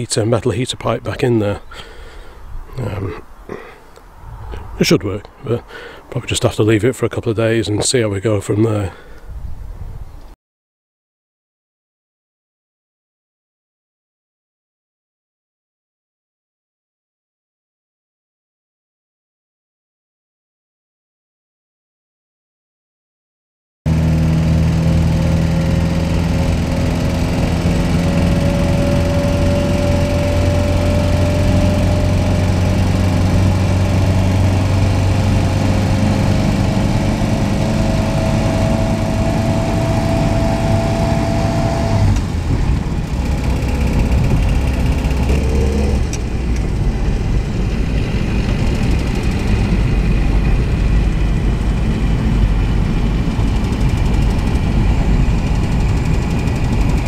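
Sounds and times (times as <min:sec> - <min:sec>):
car engine running: 0:23.9 - 0:57.0.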